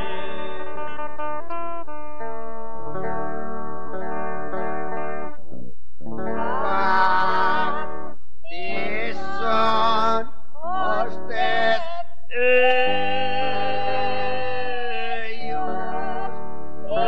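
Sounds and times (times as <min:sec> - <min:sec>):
person singing long wavering notes: 0:00.0 - 0:01.2, 0:06.1 - 0:17.0.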